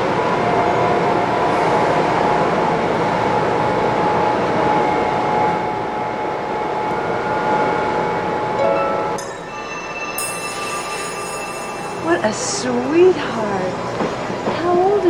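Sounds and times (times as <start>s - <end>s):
subway train rumble: 0.0s - 15.0s
short higher tones: 8.6s - 13.3s
thin high whine: 8.6s - 14.0s.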